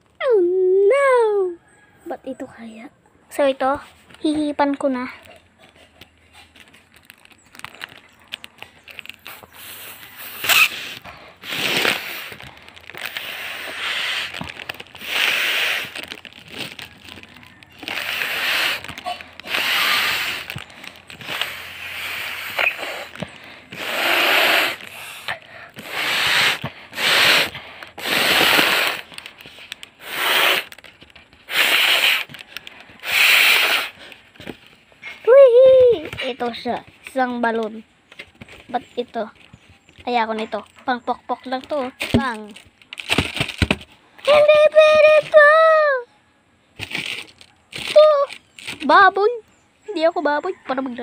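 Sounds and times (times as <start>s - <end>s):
breath puffs blowing up balloon: 5.7s - 37.2s, 46.8s - 48.9s.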